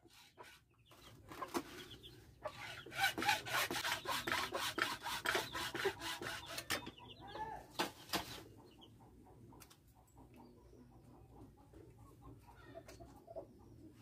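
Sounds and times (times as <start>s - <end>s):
chicken clucking: 0.0s - 14.0s
hacksaw cutting plastic pipe: 2.5s - 6.9s.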